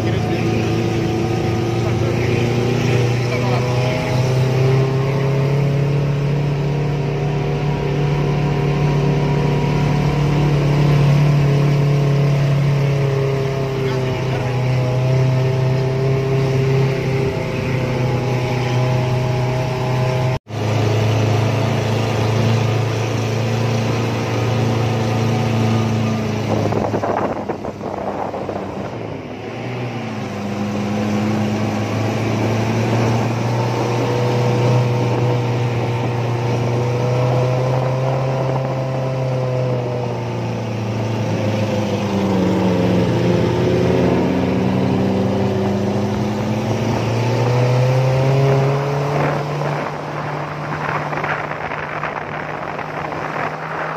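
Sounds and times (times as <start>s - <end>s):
off-road vehicle engine running: 0.0s - 53.9s
noisy rushing: 13.7s - 39.1s, 39.7s - 53.9s.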